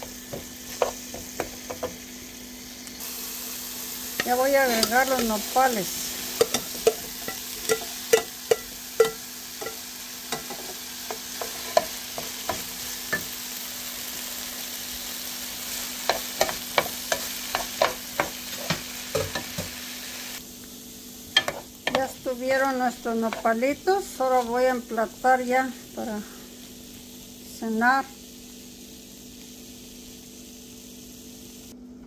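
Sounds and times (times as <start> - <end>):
vegetables sizzling in a pan: 0.0 - 31.8
wooden spoon knocking on pan: 0.3 - 2.0, 16.1 - 19.8, 21.4 - 22.1.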